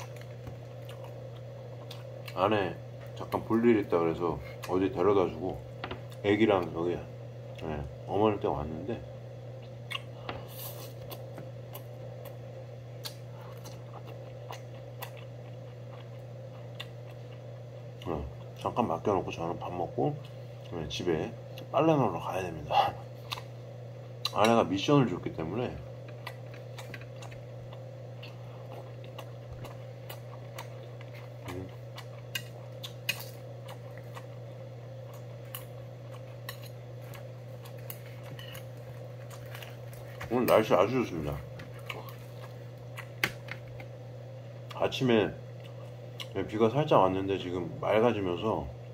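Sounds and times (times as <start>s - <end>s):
chewing clicks and crackles: 26.0s - 44.0s.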